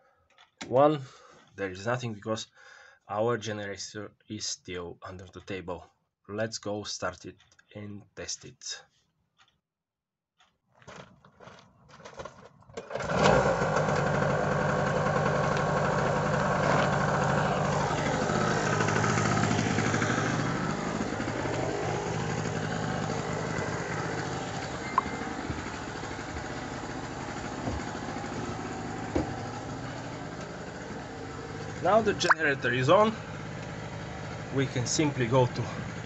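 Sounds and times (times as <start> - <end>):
generator engine running: 12.8 - 36.0.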